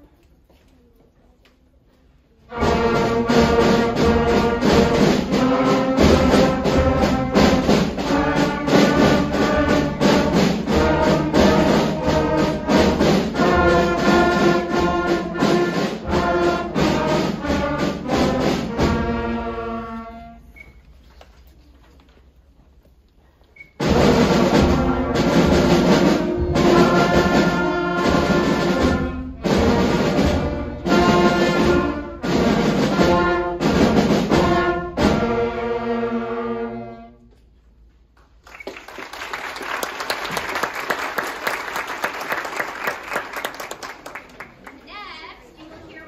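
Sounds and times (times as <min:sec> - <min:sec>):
school concert band playing: 0:02.0 - 0:21.8, 0:23.5 - 0:46.0
audience applauding: 0:38.2 - 0:45.2.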